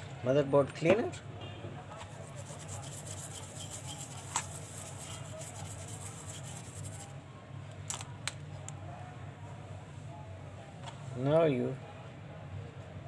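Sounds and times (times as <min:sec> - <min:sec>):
toothbrush scrubbing circuit board: 0:02.1 - 0:07.1.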